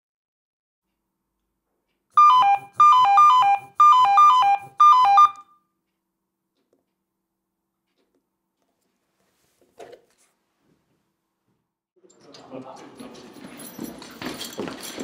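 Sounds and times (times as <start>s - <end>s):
pager alarm beeps: 2.2s - 5.6s.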